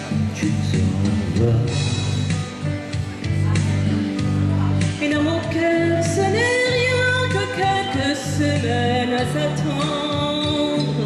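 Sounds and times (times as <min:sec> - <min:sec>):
instrumental accompaniment: 0:00.0 - 0:11.0
woman singing into microphone: 0:03.6 - 0:11.0.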